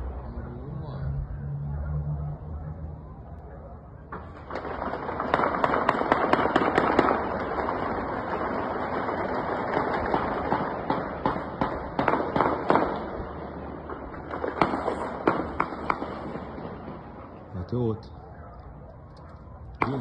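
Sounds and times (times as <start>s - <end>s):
sharp echoing bangs: 4.0s - 18.4s, 19.6s - 20.0s.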